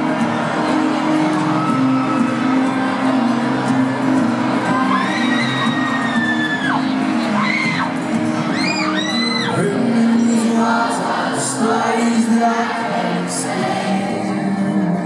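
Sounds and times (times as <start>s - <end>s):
crowd singing along: 0.0s - 15.0s
live pop band playing: 0.0s - 15.0s
shrill whoops from fans: 4.8s - 7.9s, 8.5s - 9.6s.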